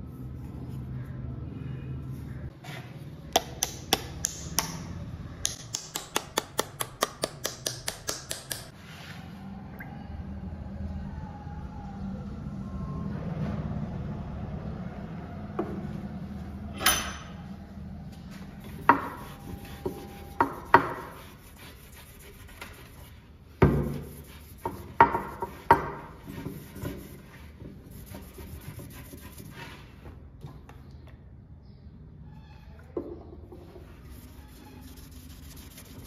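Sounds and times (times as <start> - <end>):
low hum: 9.1 - 20.4
rubbing and handling sounds: 18.1 - 30.2, 33.6 - 36.0.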